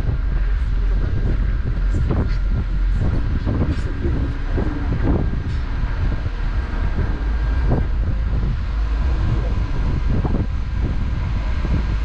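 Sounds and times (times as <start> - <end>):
ferry engine low rumble: 0.0 - 12.0
wind buffeting microphone: 0.0 - 12.0.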